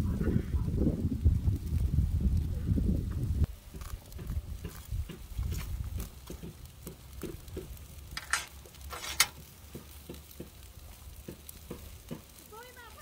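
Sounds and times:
dry grass crackling: 1.0 - 13.0
crisp snaps of grass: 3.4 - 12.6.

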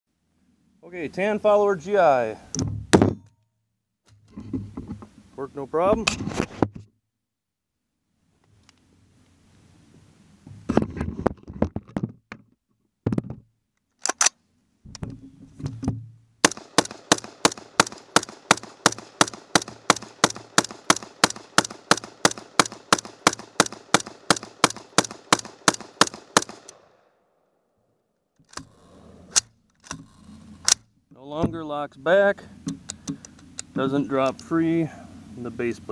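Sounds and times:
rifle handling clicks: 13.9 - 14.4, 16.5 - 26.9
rifle bolt locking back: 14.0 - 14.4
rifle shots: 16.4 - 27.1.

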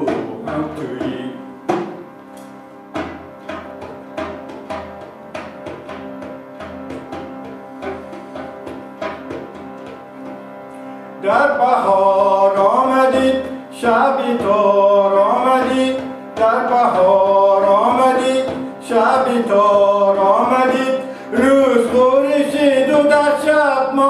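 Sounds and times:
frame drum taps: 0.0 - 10.6
harmonium drone: 0.0 - 24.0.

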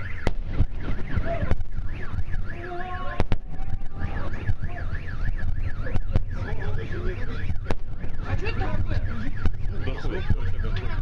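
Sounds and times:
sharp cracks: 0.0 - 2.4
car alarm warbling: 0.0 - 11.0.

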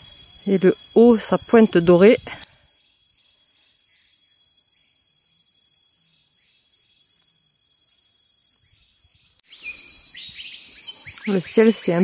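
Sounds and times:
insects droning: 0.0 - 12.0
faint bird chirps: 8.6 - 12.0.

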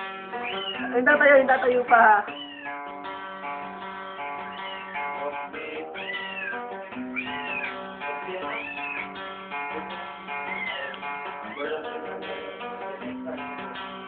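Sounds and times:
acoustic guitar: 0.0 - 14.0
cat meowing: 0.3 - 1.0, 2.2 - 3.1, 4.3 - 9.2, 10.2 - 12.0.

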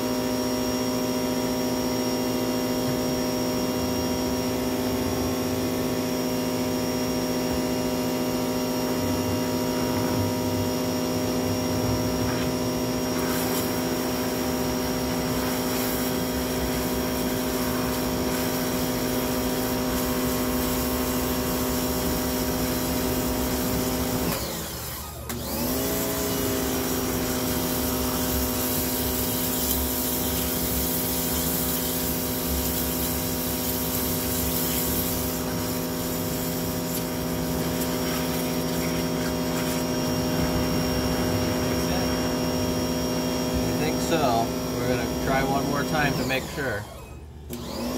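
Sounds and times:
pressure washer motor whine: 0.0 - 47.9.

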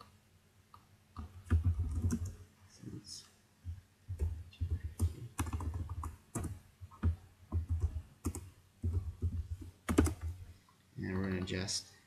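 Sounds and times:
keyboard typing: 1.2 - 2.4, 3.7 - 10.5.

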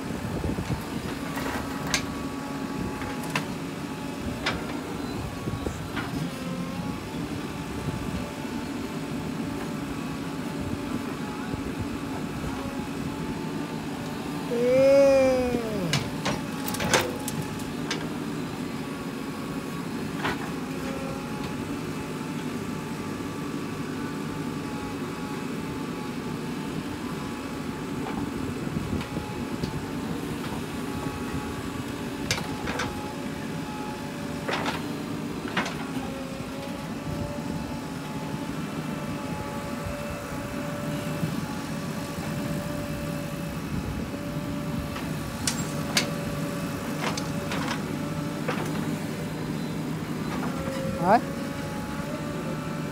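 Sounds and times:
diesel engine running under load: 0.0 - 52.9.

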